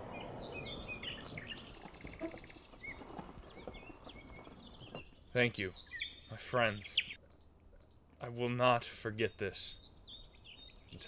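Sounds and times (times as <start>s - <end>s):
songbirds chirping and twittering: 0.0s - 11.0s
footsteps on gravel: 1.3s - 5.1s.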